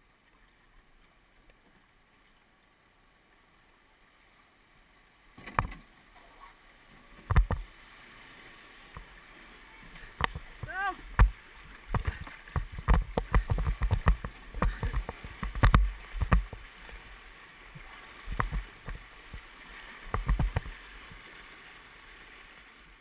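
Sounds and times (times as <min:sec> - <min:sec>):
water splashing against a canoe: 0:05.3 - 0:23.0
knocks on canoe: 0:10.2 - 0:16.6, 0:18.3 - 0:19.4, 0:20.1 - 0:20.7.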